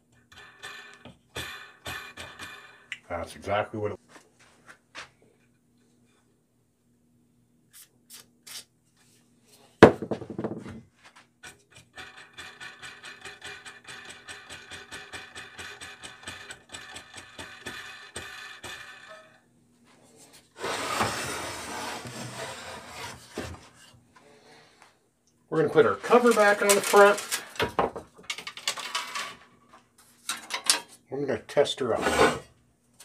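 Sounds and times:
metal cover scraping and rattling: 0:25.7 - 0:27.6, 0:31.9 - 0:32.5.

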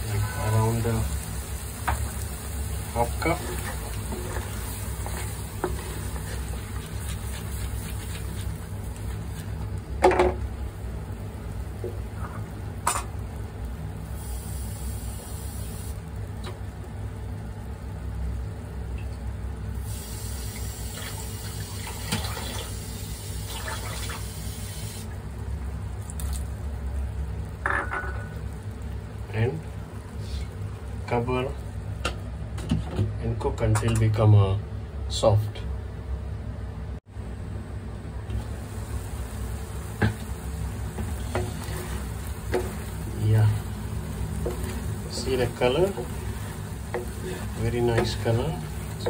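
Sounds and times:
sauce bubbling in a pan: 0:00.0 - 0:27.6, 0:28.3 - 0:32.4, 0:38.4 - 0:49.0.

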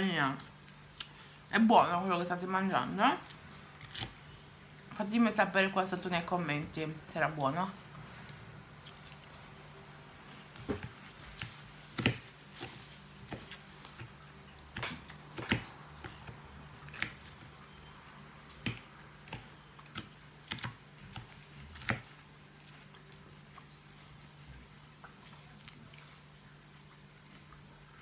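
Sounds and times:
low steady hum: 0:00.0 - 0:28.0
salad crunching while eaten: 0:03.2 - 0:04.8.

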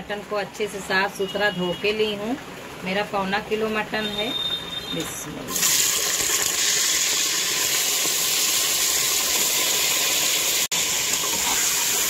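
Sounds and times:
meat sizzling in hot oil: 0:04.0 - 0:12.0.

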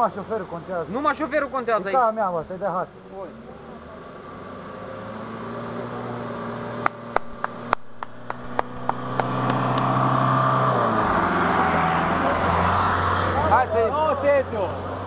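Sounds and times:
suv engine driving past: 0:03.8 - 0:15.0.

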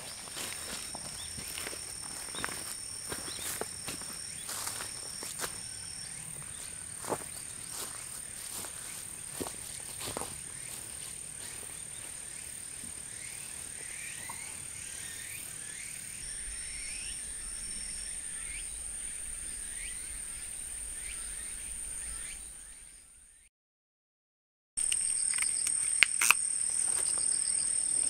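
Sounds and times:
footsteps on grass: 0:00.0 - 0:05.8, 0:06.4 - 0:14.3
insects trilling: 0:00.0 - 0:23.2, 0:24.8 - 0:28.0
short rising chirping calls: 0:11.6 - 0:23.1.

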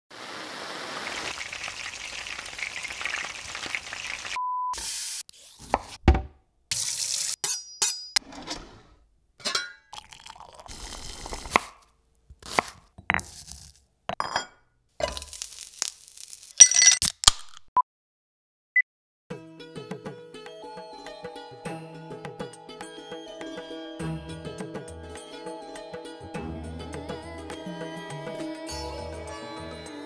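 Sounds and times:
food sizzling: 0:00.1 - 0:05.2, 0:06.7 - 0:07.4, 0:10.1 - 0:11.6, 0:15.0 - 0:16.6
pots and dishes clinking: 0:09.4 - 0:09.9.

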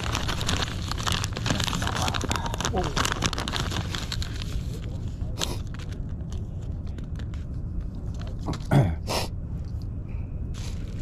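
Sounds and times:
crinkly plastic bag crackling: 0:00.0 - 0:08.5.

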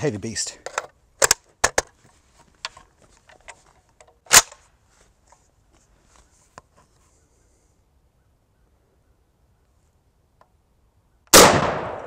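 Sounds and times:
rifle handling clicks: 0:00.6 - 0:01.9
rifle shot crack: 0:11.3 - 0:12.0.

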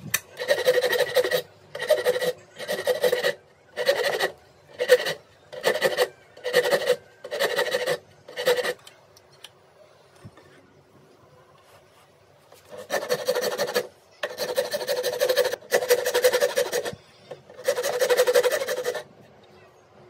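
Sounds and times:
hand file rasping on wood: 0:00.4 - 0:08.8, 0:12.7 - 0:19.1.

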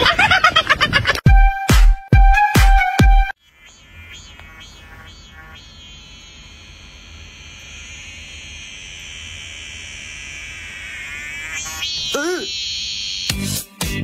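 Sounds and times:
high electronic ringing tone: 0:03.3 - 0:13.5.

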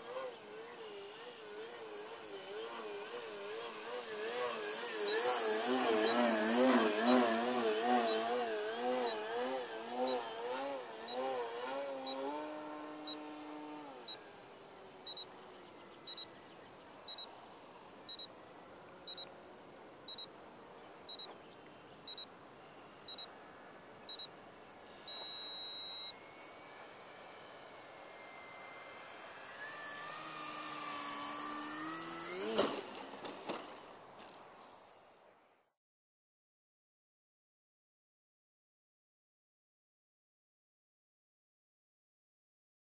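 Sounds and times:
electric motor and propeller whining: 0:00.0 - 0:16.4, 0:24.2 - 0:35.0
electronic beeps: 0:16.1 - 0:16.3, 0:19.1 - 0:19.3, 0:20.1 - 0:20.3, 0:21.1 - 0:21.3, 0:22.1 - 0:22.3, 0:23.1 - 0:23.3, 0:24.1 - 0:24.3, 0:25.1 - 0:26.2.

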